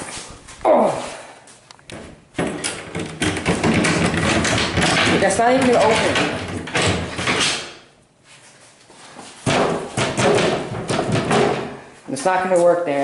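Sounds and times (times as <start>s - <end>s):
metal box lid rattling: 2.4s - 7.7s.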